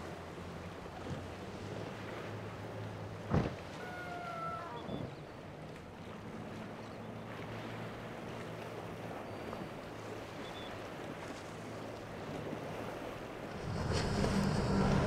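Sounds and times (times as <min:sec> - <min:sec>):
boat engine droning: 0:00.0 - 0:15.0
wind: 0:00.0 - 0:15.0
water washing: 0:13.4 - 0:15.0.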